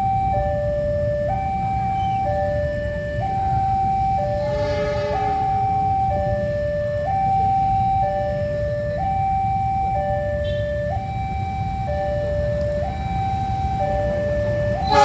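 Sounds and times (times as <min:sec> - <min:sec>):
level-crossing two-tone alarm: 0:00.0 - 0:15.0
faint horn: 0:04.4 - 0:05.5.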